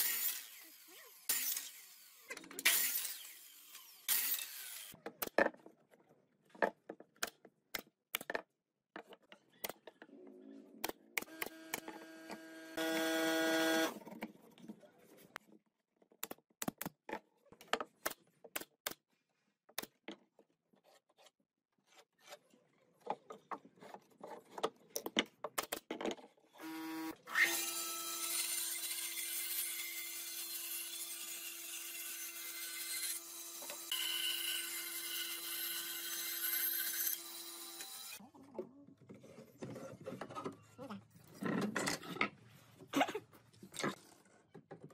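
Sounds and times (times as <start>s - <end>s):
bandsaw cutting wood: 0.0s - 5.0s, 11.2s - 14.0s, 26.6s - 38.2s.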